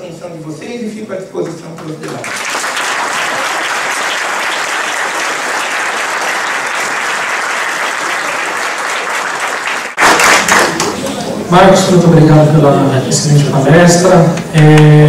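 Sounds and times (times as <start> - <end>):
audience applauding: 2.0 - 11.2.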